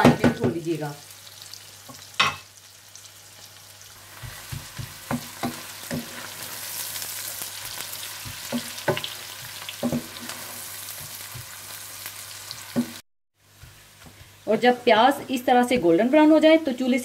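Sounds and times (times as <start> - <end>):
onions sizzling in a pan: 0.0 - 17.0
spoon knocking and scraping pan: 4.1 - 11.8, 12.5 - 16.0.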